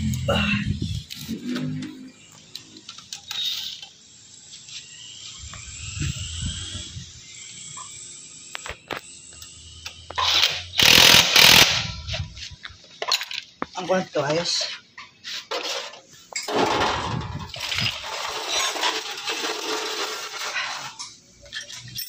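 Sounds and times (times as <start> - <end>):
impact wrench motor whining: 1.0 - 12.4.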